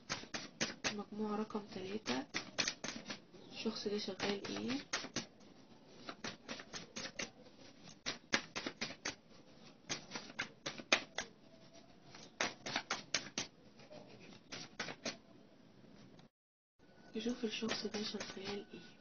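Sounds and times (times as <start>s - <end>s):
cards being shuffled: 0.0s - 1.0s, 2.0s - 3.2s, 4.1s - 11.4s, 12.1s - 13.5s, 14.1s - 15.2s, 17.6s - 18.7s.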